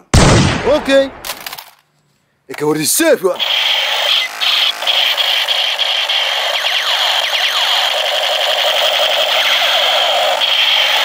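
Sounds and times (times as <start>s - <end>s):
electronic sweeping tones: 3.4s - 11.0s
toy rifle electronic firing buzz: 3.4s - 11.0s.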